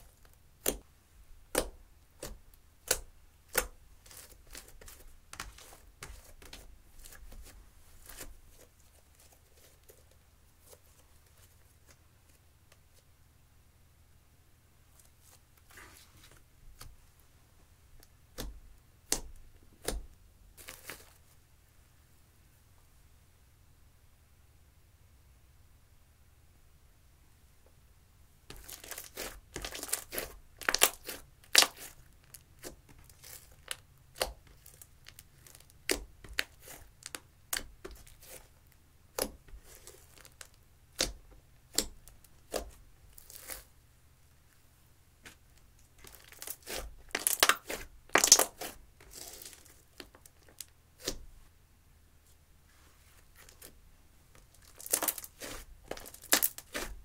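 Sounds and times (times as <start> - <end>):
sticky slime clicks and crackles: 46.0 - 51.2, 54.6 - 56.9.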